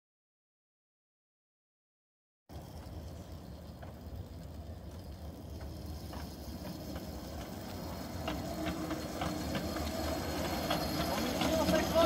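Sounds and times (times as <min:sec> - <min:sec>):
train wheels clicking over rails: 0:02.5 - 0:12.0.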